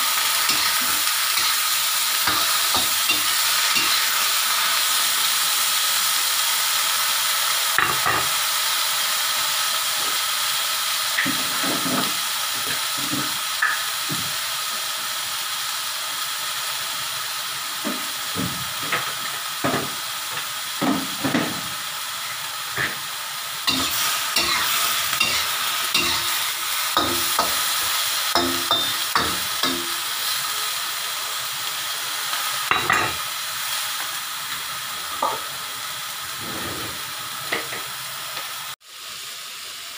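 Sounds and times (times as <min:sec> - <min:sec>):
vegetables sizzling in a wok: 0:00.0 - 0:39.9
metal spatula scraping a pan: 0:00.5 - 0:01.6, 0:02.3 - 0:04.2, 0:23.7 - 0:27.6.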